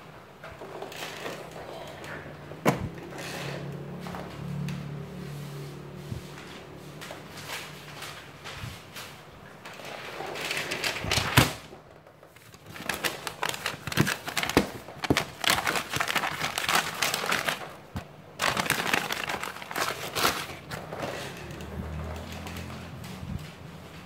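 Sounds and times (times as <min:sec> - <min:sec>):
paper rustling and crinkling: 0:05.8 - 0:24.0.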